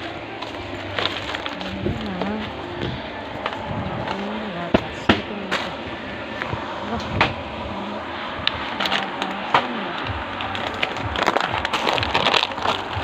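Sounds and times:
store bustle hiss: 0.0s - 11.1s.

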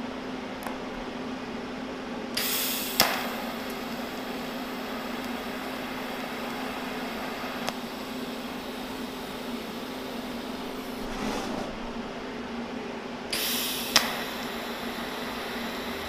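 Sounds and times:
sharp snap: 2.4s - 3.4s
welding arc hissing: 2.4s - 11.2s, 13.3s - 16.0s
low steady hum: 3.4s - 13.3s.

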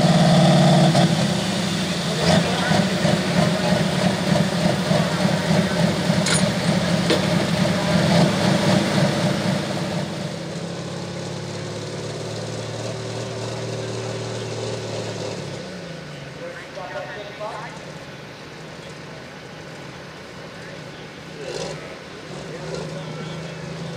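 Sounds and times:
tractor diesel engine running: 0.0s - 23.9s.

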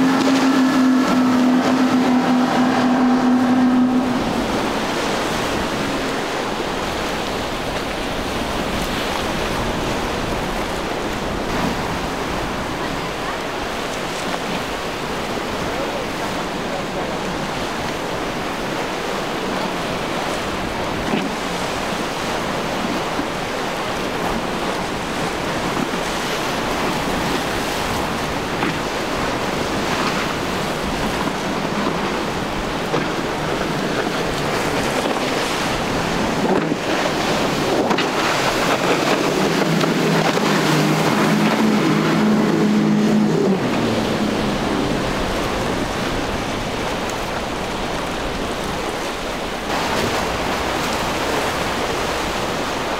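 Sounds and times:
outboard engines humming: 0.0s - 52.9s
surf and choppy water: 0.0s - 52.9s.

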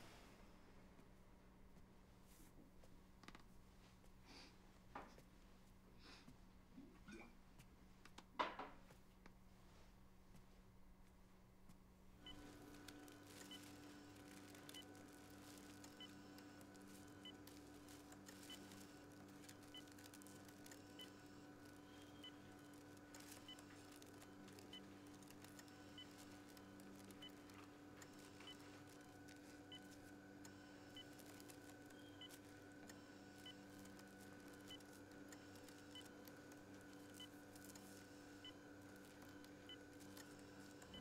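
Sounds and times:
low room hum: 0.0s - 41.0s
medical equipment beeping: 12.2s - 41.0s.

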